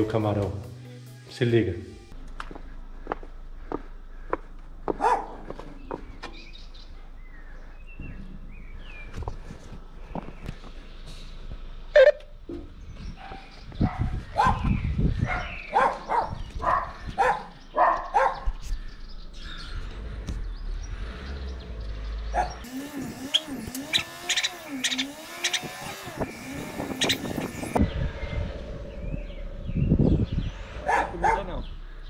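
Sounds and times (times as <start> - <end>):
dog barking: 4.9 - 5.4, 13.2 - 18.5, 22.4 - 22.6, 30.8 - 31.6
wavering rising and falling tone: 22.6 - 30.6.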